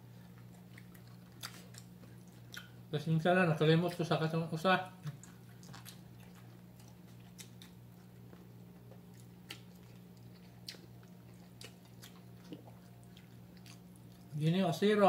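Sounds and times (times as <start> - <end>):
quiet chewing: 0.0 - 2.9, 4.9 - 14.4
steady low hum: 0.0 - 15.0.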